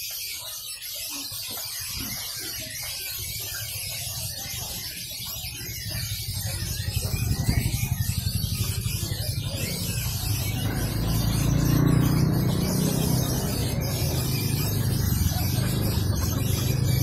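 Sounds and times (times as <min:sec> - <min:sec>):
faint voices: 0:00.1 - 0:17.0
small engine rumbling: 0:03.2 - 0:17.0.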